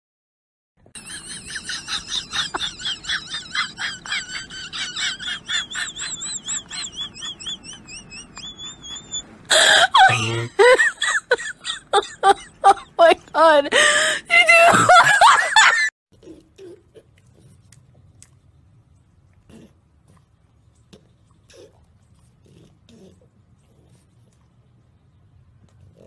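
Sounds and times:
high-pitched rhythmic laughter: 0:01.0 - 0:15.9.

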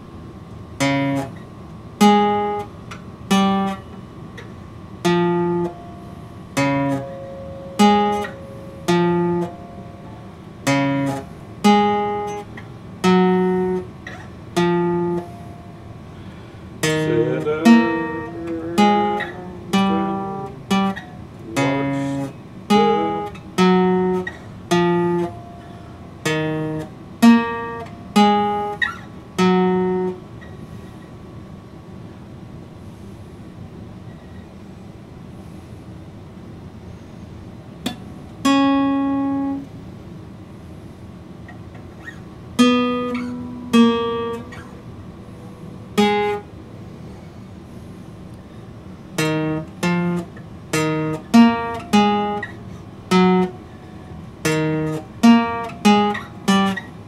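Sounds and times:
acoustic guitar strummed chords: 0:00.8 - 0:30.5, 0:37.9 - 0:39.8, 0:42.5 - 0:46.7, 0:49.1 - 0:57.0
guitar run of notes: 0:05.0 - 0:15.6, 0:16.3 - 0:30.2.

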